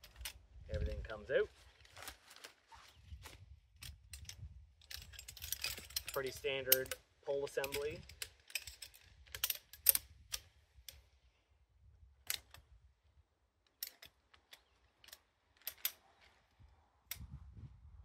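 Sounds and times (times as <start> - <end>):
chair frame poles clicking together: 13.7 - 16.0.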